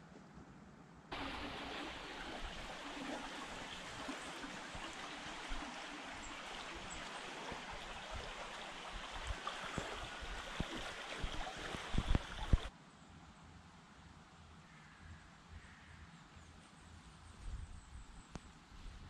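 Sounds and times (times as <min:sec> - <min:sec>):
stream running: 0:01.1 - 0:12.7.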